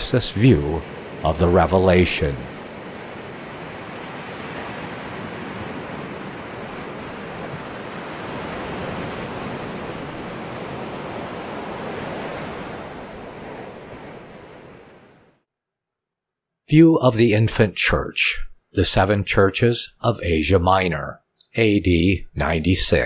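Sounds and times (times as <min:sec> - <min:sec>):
ocean waves breaking on beach: 0:00.0 - 0:15.4.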